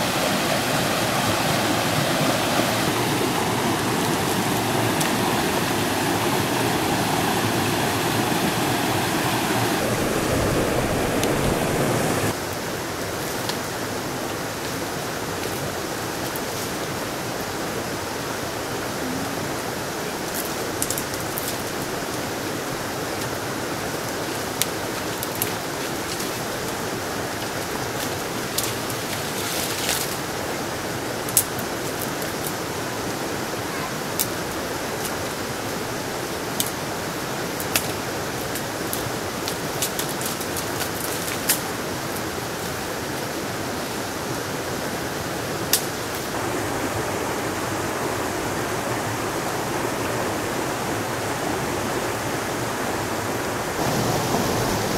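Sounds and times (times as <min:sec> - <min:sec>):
river rushing: 0:00.0 - 0:54.9
twigs snapping: 0:37.6 - 0:41.7, 0:45.7 - 0:46.3.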